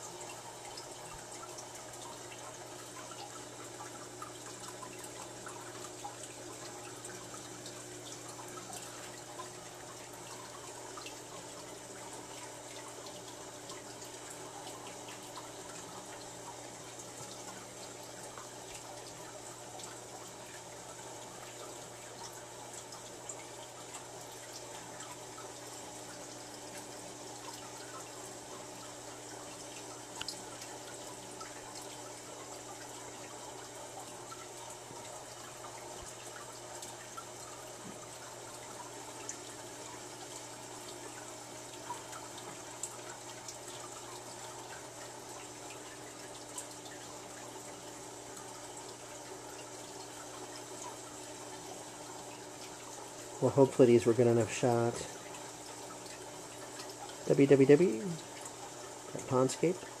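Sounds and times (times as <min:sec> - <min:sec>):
water trickling and splashing: 0:00.0 - 1:00.0.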